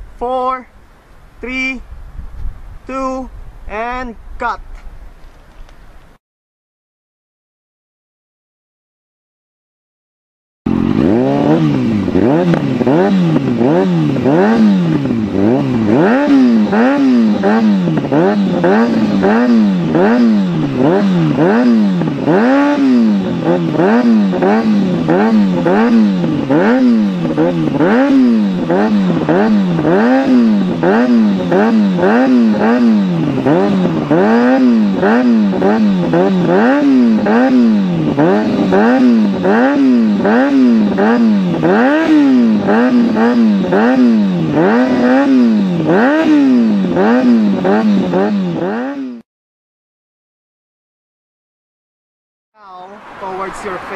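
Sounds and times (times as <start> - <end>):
motorcycle engine revving: 10.7 - 49.2, 52.7 - 53.9.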